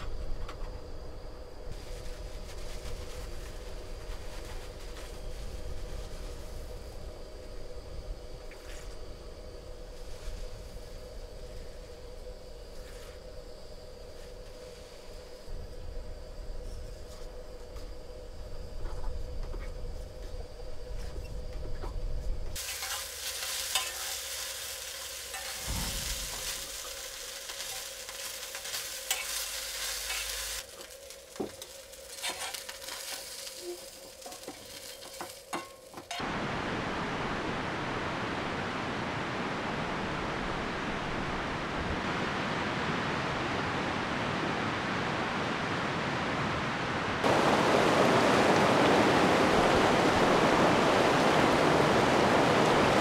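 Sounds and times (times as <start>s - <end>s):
sausages sizzling in a frying pan: 22.6s - 35.7s
river rapids rushing: 36.2s - 53.0s.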